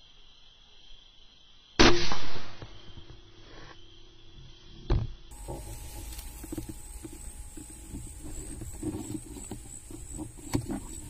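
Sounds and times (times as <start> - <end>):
air rifle shot: 1.8 - 2.8
faint high whine: 2.8 - 11.0
low rumbling handling noise: 5.3 - 11.0.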